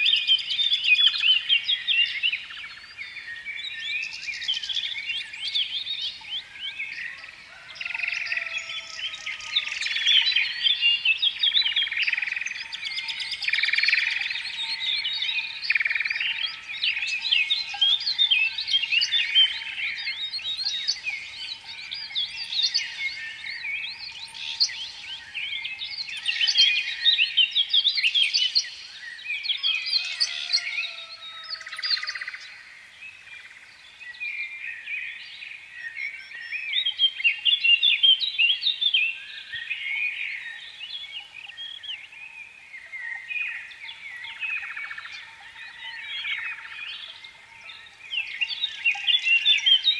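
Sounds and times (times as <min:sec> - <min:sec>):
small birds chirping: 0:00.0 - 0:49.9.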